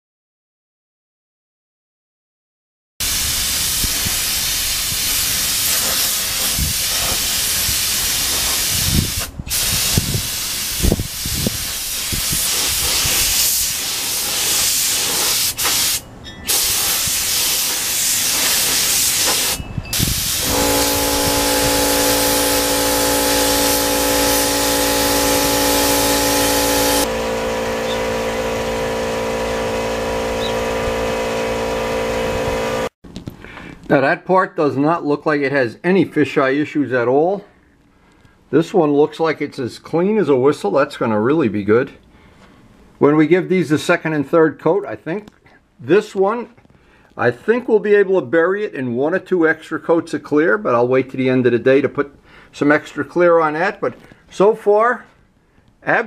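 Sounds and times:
spray gun hissing: 3.0s - 32.0s
multi-tone hum: 15.0s - 32.9s.

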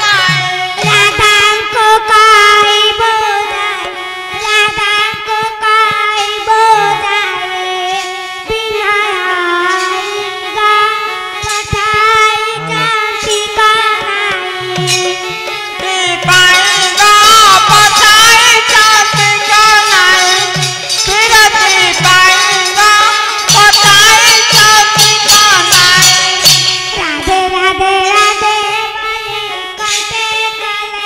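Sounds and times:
drum strokes: 0.0s - 2.8s, 11.4s - 30.8s
high voice singing through microphone: 0.0s - 31.0s.

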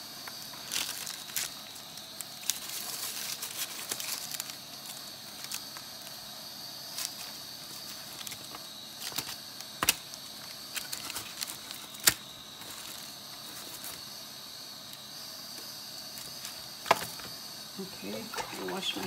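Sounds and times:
faint steady hiss: 0.0s - 19.0s
aluminium foil crinkling: 0.2s - 14.2s, 16.1s - 19.0s.

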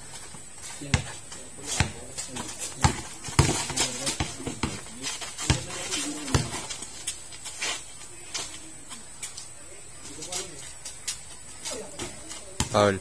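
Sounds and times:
basketball bouncing on hard court: 0.9s - 2.0s, 2.8s - 4.8s, 5.4s - 6.6s, 12.0s - 12.8s.

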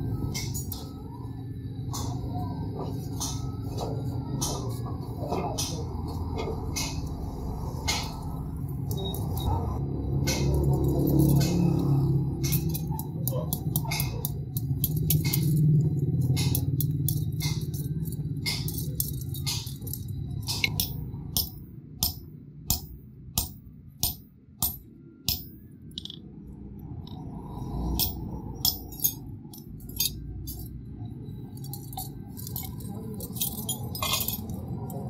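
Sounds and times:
chain clinking: 0.0s - 22.9s, 24.6s - 26.2s, 26.9s - 35.0s
hammer striking metal on anvil: 10.1s - 26.2s.

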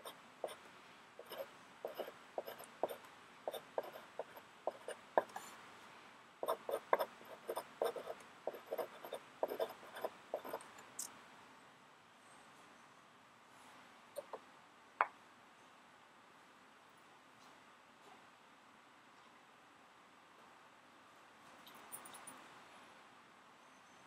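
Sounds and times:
pen nib scratching on paper: 1.2s - 5.5s, 6.4s - 10.7s.

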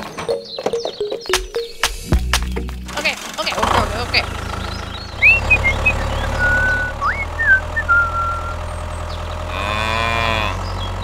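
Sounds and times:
tractor engine drone: 0.0s - 11.0s
high whistling chirps: 5.1s - 8.6s
cow mooing: 9.5s - 10.7s.

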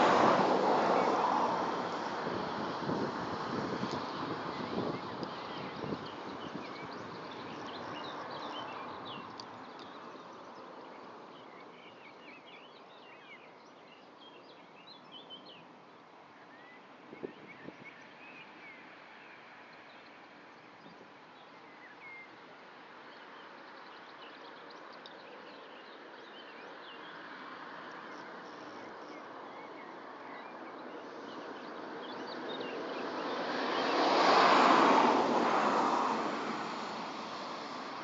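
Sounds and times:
passing vehicle rushing: 0.0s - 9.4s, 31.1s - 38.0s.

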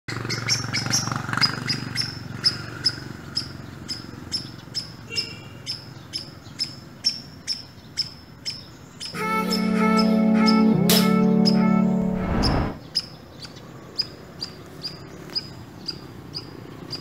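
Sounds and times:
passing traffic rumble: 0.1s - 5.0s, 9.2s - 12.9s.

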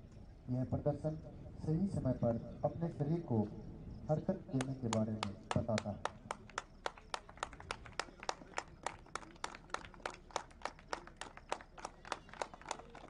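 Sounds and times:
rhythmic hand clapping: 4.6s - 13.0s.

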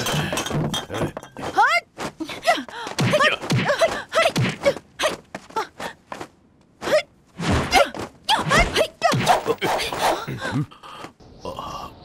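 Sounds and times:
people shouting and grunting: 2.3s - 5.8s, 6.8s - 10.7s.

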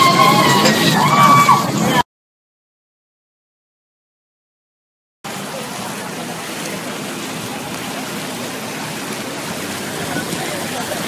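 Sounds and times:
heavy rain and floodwater rushing: 0.0s - 2.0s, 5.2s - 11.0s.

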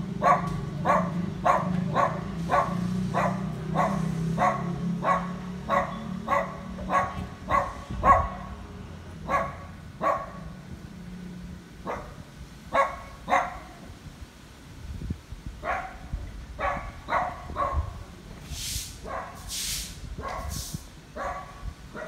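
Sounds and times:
dog barking: 0.2s - 8.6s, 9.2s - 10.5s, 11.8s - 13.8s, 15.6s - 18.0s, 19.0s - 19.5s, 20.2s - 20.6s, 21.2s - 22.0s.

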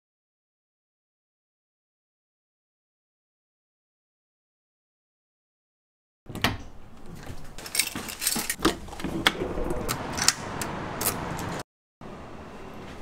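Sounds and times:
keys jangling: 7.6s - 8.6s.

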